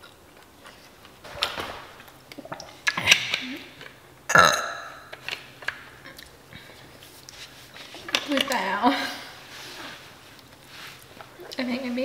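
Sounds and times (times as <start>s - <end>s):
person burping: 4.3s - 5.1s.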